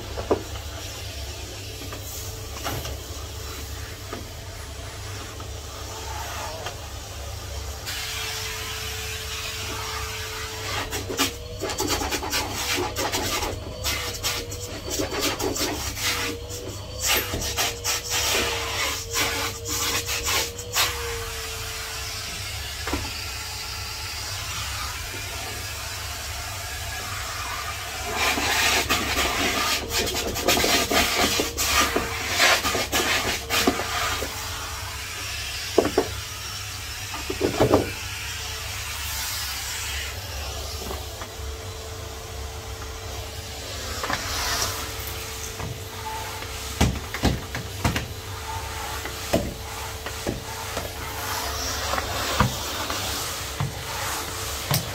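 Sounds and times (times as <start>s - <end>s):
vacuum cleaner running: 0.0s - 54.9s
rubbing and scraping: 10.6s - 21.0s, 28.0s - 34.4s.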